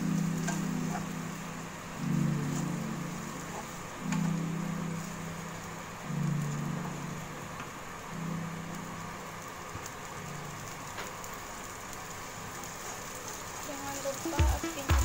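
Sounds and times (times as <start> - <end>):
meat sizzling in a frying pan: 9.3 - 14.9.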